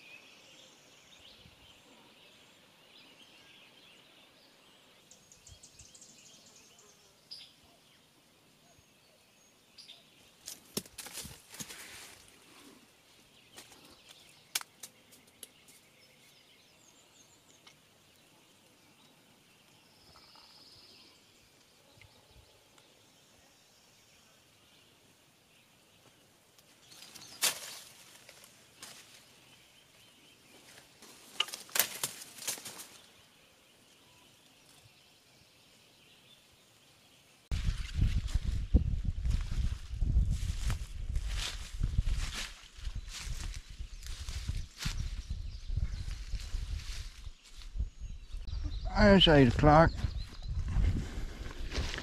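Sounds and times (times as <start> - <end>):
rustling: 50.6 - 52.0.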